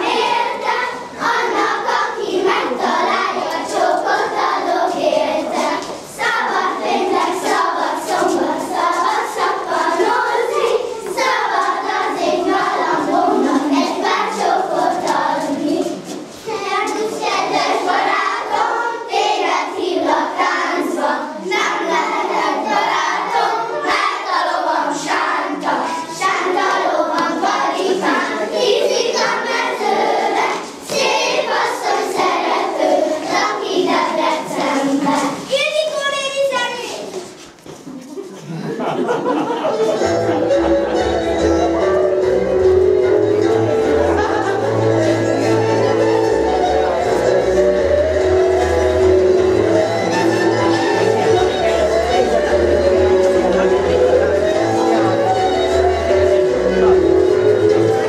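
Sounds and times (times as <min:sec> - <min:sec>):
children singing in unison: 0:00.0 - 0:35.5
feet tapping on floor: 0:37.0 - 0:38.2.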